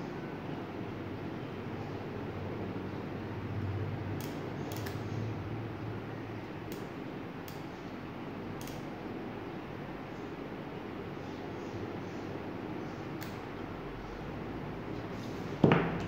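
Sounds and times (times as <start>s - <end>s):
steady low hum: 0.0s - 16.0s
soldering gun trigger clicks: 8.6s - 8.9s.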